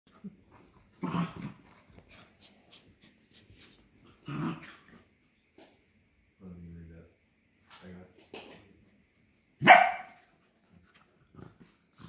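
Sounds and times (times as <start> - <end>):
dogs growling: 0.1 - 2.3, 4.0 - 5.2.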